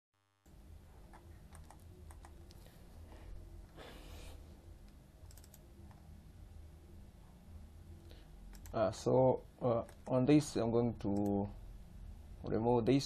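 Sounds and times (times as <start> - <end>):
low hum: 0.2 - 13.0
mouse and keyboard clicks: 8.5 - 8.8.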